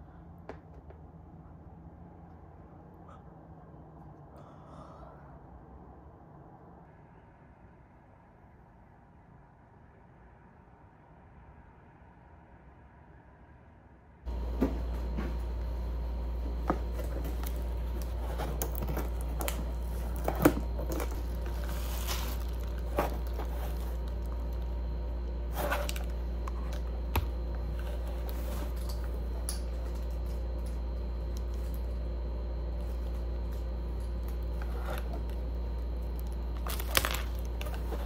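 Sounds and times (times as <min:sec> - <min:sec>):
steady low hum: 0:00.0 - 0:38.0
cardboard box being opened: 0:16.5 - 0:30.0.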